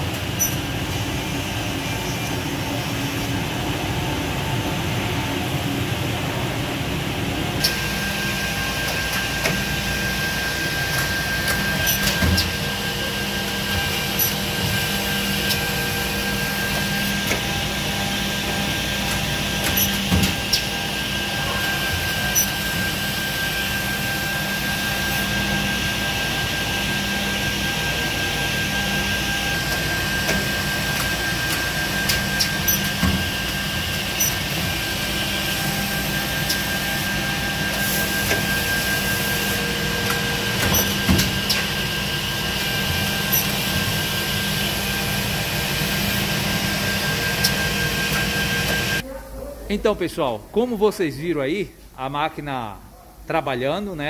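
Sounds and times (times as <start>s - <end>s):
machine motor hum and whine: 0.0s - 49.0s.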